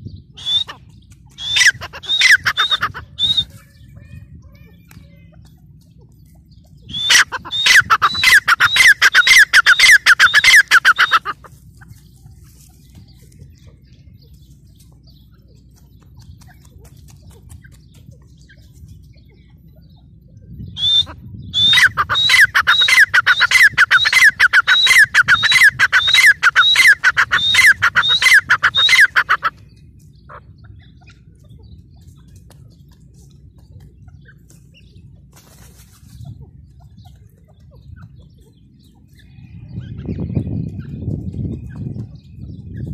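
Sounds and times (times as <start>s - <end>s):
francolin calling: 0.4s - 3.6s, 6.7s - 12.0s, 20.6s - 31.3s.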